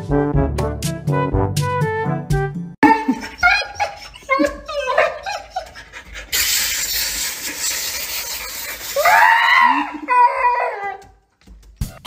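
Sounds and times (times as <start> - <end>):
dog yowling: 3.4 - 5.8, 9.0 - 11.1
water spraying into bathtub: 6.3 - 9.5
dog howling: 9.0 - 11.1.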